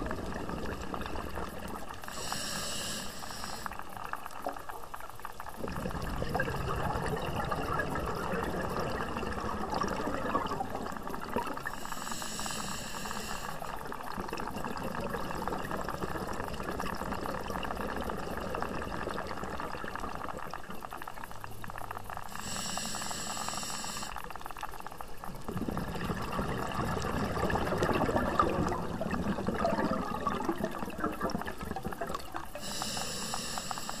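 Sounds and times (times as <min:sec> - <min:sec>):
exhaled bubbles gurgling underwater: 0:00.0 - 0:34.0
regulator hissing inhale: 0:02.0 - 0:04.0, 0:11.6 - 0:13.8, 0:22.2 - 0:24.3, 0:32.5 - 0:34.0.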